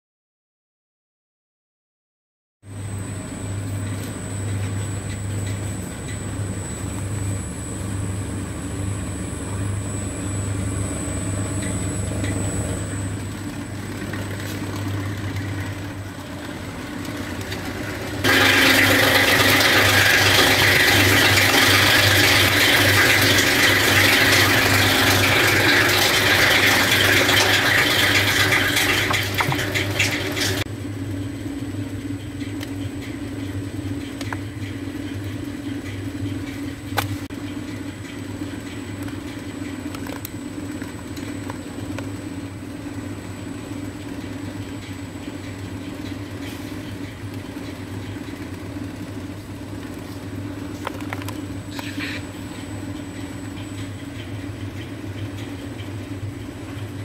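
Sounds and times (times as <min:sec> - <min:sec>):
cutting machine humming: 0:07.2 - 0:30.6.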